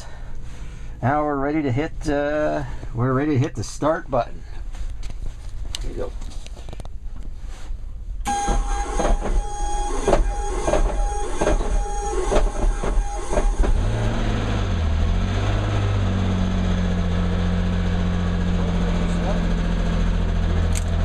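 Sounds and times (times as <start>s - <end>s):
electric starter whine: 8.2s - 16.2s
engine compression thumps: 8.2s - 21.0s
piston engine idling: 8.3s - 15.0s.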